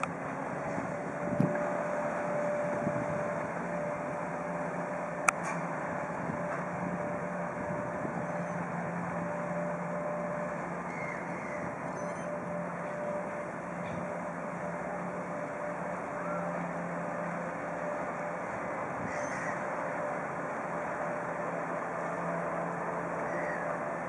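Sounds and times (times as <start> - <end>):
ferry engines humming: 0.0 - 24.0.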